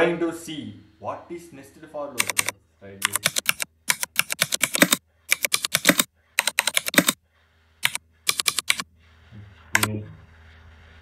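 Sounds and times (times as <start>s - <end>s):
keyboard typing: 2.2s - 7.2s, 7.8s - 8.9s.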